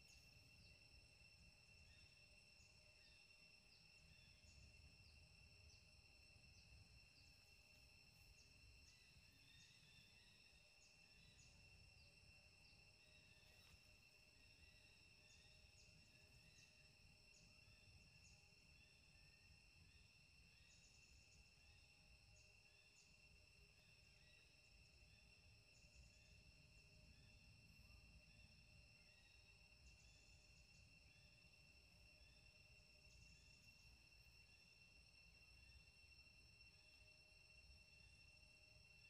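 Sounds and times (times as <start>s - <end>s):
high-pitched insect drone: 0.0s - 23.2s.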